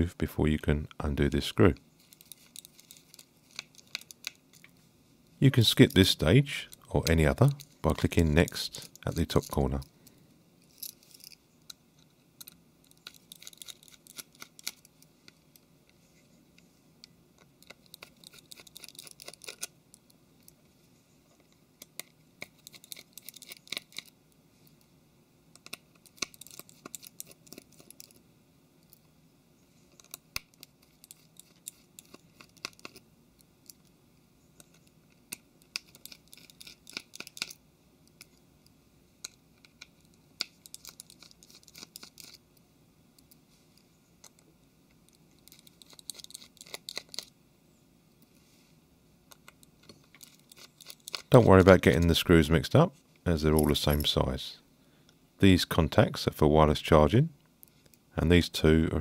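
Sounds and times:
screwdriver clicking and scratching: 2.0s - 4.7s, 12.4s - 15.4s, 17.6s - 19.8s, 21.8s - 24.1s, 25.6s - 28.2s, 29.9s - 33.9s, 34.6s - 38.4s, 39.2s - 42.4s, 45.4s - 47.3s, 49.3s - 52.0s.

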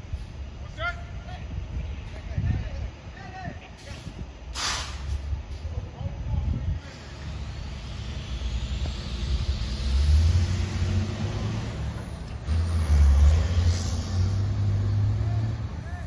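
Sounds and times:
truck engine revving: 6.9s - 16.0s.

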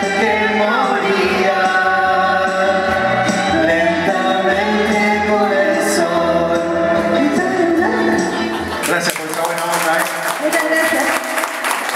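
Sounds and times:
man and woman singing a duet: 0.0s - 8.8s.

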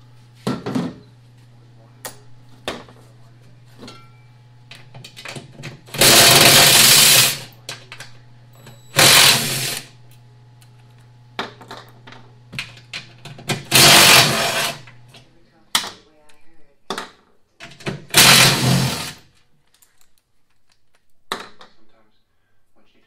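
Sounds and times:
cordless driver whirring: 5.9s - 7.5s, 8.9s - 9.9s, 13.6s - 15.0s, 18.1s - 19.2s.

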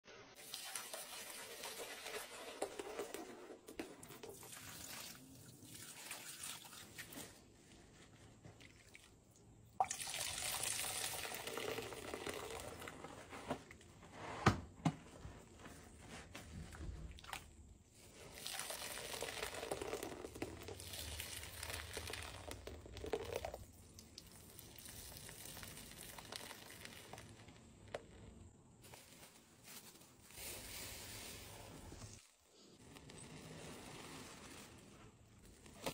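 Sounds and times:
sponge squelching: 24.4s - 35.9s.

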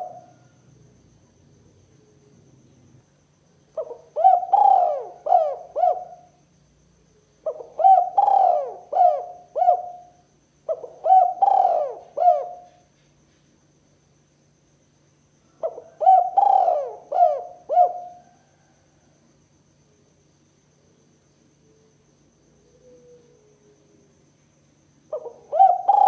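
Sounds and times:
dove cooing: 0.0s - 0.5s, 3.8s - 6.3s, 7.4s - 12.8s, 15.6s - 18.7s, 22.7s - 23.8s, 25.1s - 26.0s.

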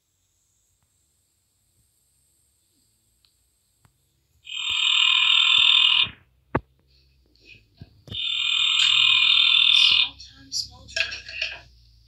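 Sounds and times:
loud raspy buzz: 4.4s - 6.3s, 8.2s - 10.2s.

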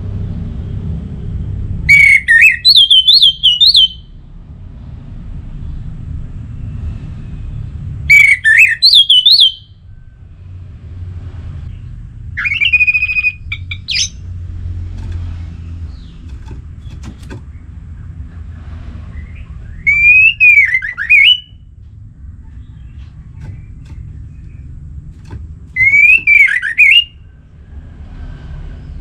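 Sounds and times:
steady low rumble: 0.0s - 1.9s, 4.0s - 8.1s, 9.7s - 29.0s
bird singing whistled notes: 1.9s - 4.1s, 8.1s - 9.8s, 12.4s - 14.2s, 19.1s - 21.6s, 25.7s - 27.2s.

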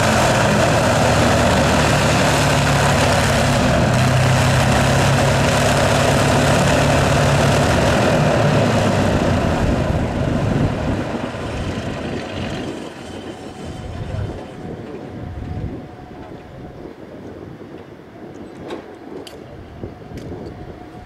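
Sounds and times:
propeller plane engine: 0.0s - 17.1s.

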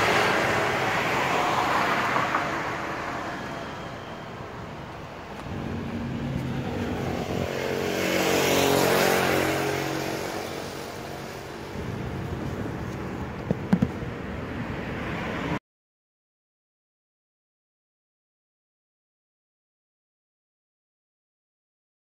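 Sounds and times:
motor vehicle passing: 5.4s - 15.6s
sharp knocks: 13.4s - 14.0s.

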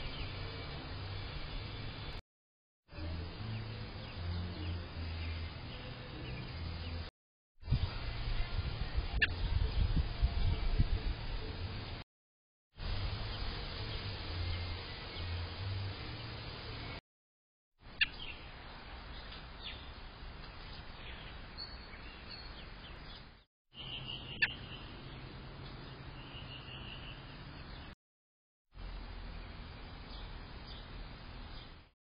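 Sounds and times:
bird chirps and calls: 21.0s - 25.2s.

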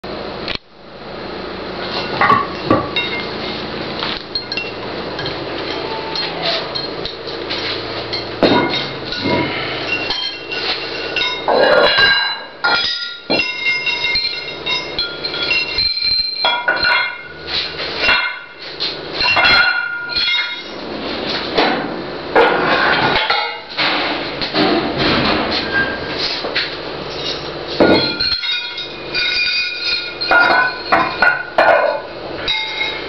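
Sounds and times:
metal weight plates clanking: 4.4s - 17.4s.

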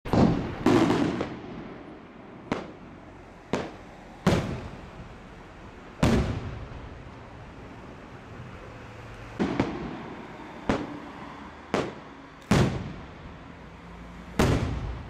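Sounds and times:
firework shells bursting with echo: 0.1s - 2.9s, 6.0s - 6.9s, 9.4s - 11.1s, 11.7s - 13.2s.

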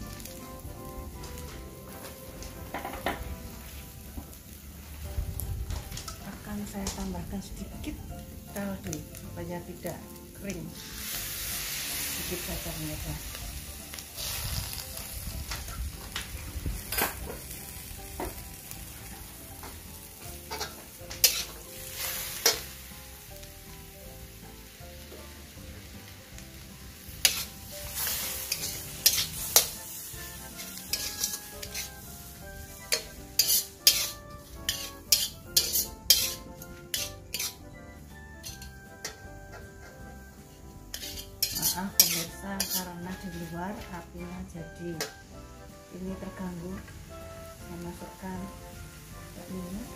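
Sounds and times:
greens sizzling in a wok: 0.0s - 49.9s
metal spatula scraping wok: 16.8s - 22.9s, 27.0s - 44.0s
spatula clanking on wok: 19.6s - 22.8s, 27.2s - 29.8s, 30.4s - 32.0s, 32.8s - 37.7s, 38.4s - 40.2s, 40.9s - 43.0s, 45.0s - 45.2s.

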